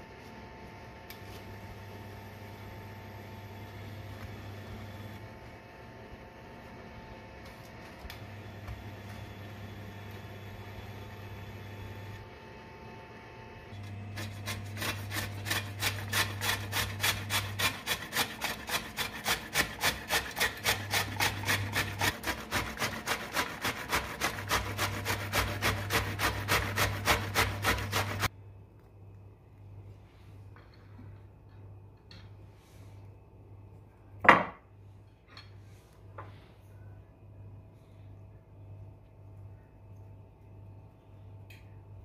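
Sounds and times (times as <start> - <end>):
vegetable rasping on a grater: 13.8 - 28.3.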